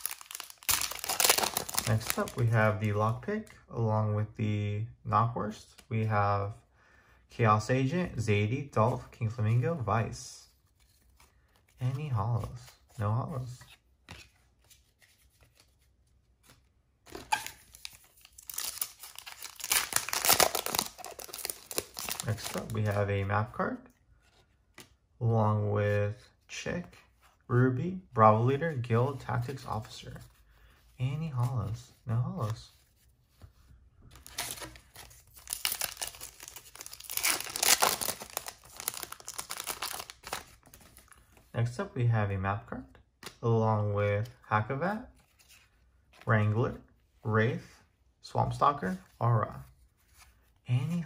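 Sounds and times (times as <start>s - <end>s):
foil card pack crinkling: 0.0s - 2.6s, 17.4s - 22.9s, 34.2s - 40.6s.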